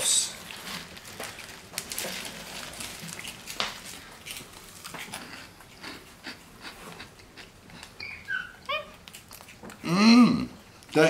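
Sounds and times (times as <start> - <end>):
crunchy snack chewing: 0.4 - 8.0, 8.6 - 9.9.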